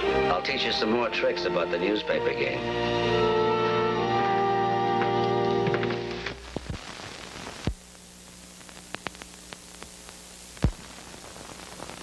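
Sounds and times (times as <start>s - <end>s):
film soundtrack hiss: 0.0s - 12.0s
crackles and clicks: 4.2s - 12.0s
loud pops: 5.1s - 8.0s, 8.6s - 12.0s.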